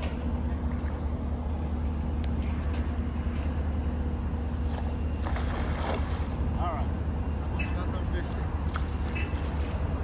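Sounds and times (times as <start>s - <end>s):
steady low rumble: 0.0s - 10.0s
net splashing onto water: 4.7s - 6.4s.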